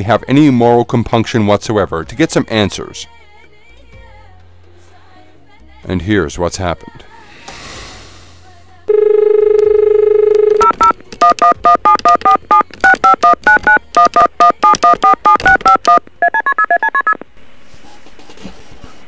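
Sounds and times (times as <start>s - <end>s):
faint line hiss: 7.0s - 8.9s
telephone dial tone: 8.9s - 17.2s
touch-tone keypad beeps: 8.9s - 17.2s.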